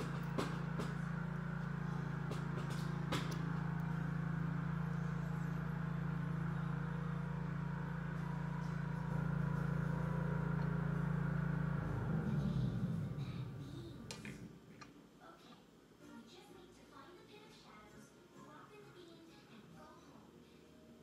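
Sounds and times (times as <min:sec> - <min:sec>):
low hum: 0:00.0 - 0:14.9.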